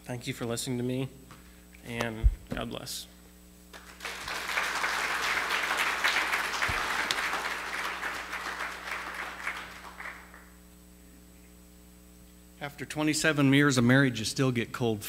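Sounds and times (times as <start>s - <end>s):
congregation applauding: 3.7s - 10.6s.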